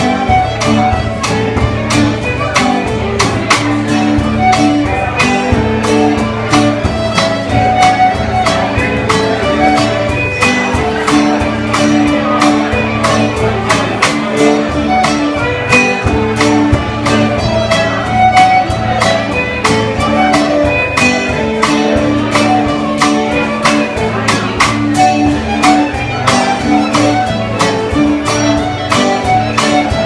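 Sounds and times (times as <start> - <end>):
acoustic guitar strumming: 0.0 - 30.0
fiddle tune: 0.0 - 30.0.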